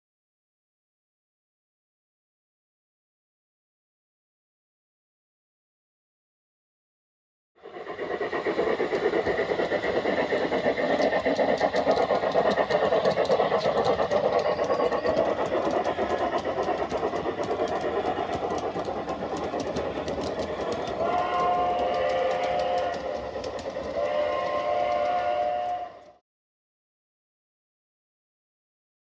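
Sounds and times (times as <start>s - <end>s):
model trains clattering: 7.6s - 26.2s
model locomotive horn: 21.0s - 23.2s, 23.9s - 26.2s.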